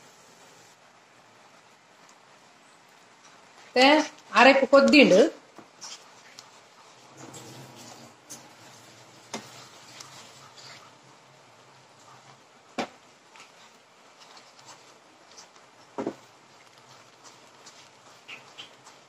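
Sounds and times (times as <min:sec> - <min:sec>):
faint steady hiss: 0:00.0 - 0:19.0
spatula scraping paste in pan: 0:13.3 - 0:19.0.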